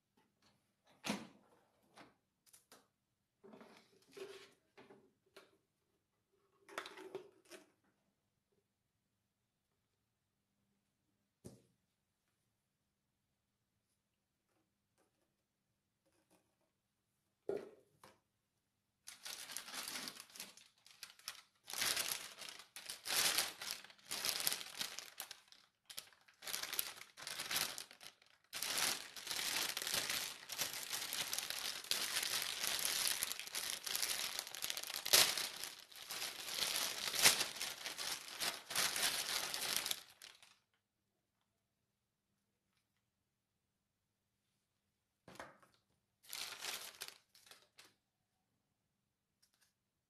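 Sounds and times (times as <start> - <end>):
plastic bag crinkling: 19.1 - 40.6, 46.3 - 47.9.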